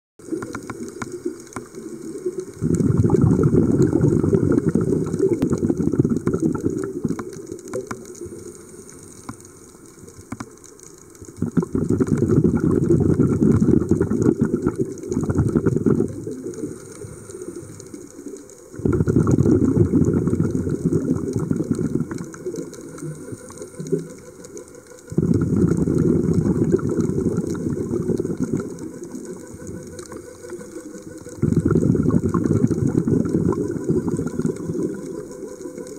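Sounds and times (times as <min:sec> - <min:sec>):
regulator exhaust bubbling underwater: 0:00.2 - 0:10.5, 0:11.2 - 0:18.0, 0:18.7 - 0:35.9
diver inhaling through regulator: 0:15.3 - 0:18.1.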